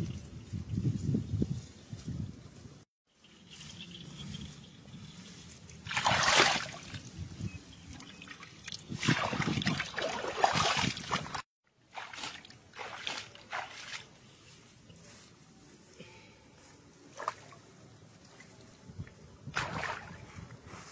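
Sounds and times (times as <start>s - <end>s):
muddy water splashing: 5.7s - 7.3s, 7.9s - 14.2s, 19.5s - 20.4s.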